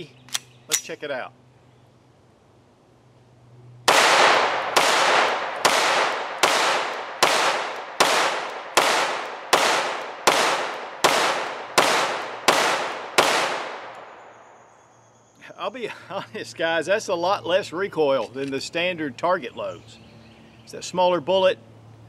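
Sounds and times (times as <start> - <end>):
pistol shots with echo: 3.9 - 14.4.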